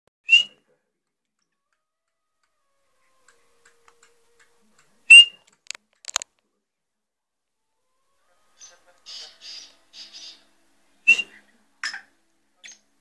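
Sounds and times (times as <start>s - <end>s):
quick clicks: 5.4s - 6.3s
bird high call notes: 8.1s - 11.5s.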